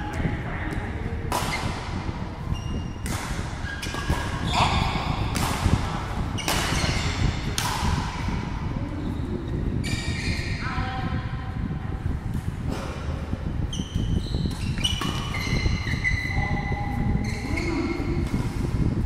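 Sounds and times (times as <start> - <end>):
racket hitting shuttlecock: 1.3 - 2.0, 3.0 - 8.4, 14.5 - 16.0
shoes squeaking on court: 2.4 - 7.5, 9.8 - 10.6, 13.7 - 18.1.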